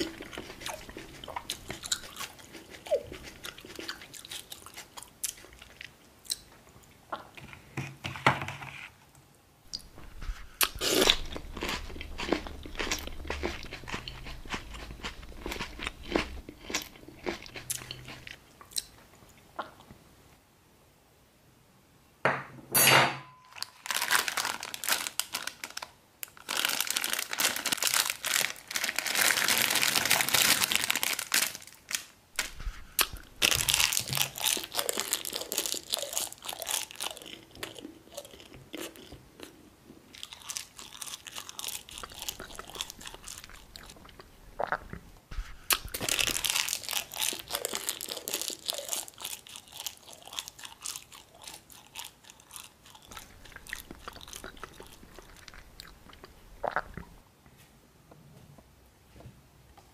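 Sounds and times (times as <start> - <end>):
plastic wrapper crinkling: 23.5 - 37.8, 40.2 - 44.2, 45.4 - 56.4.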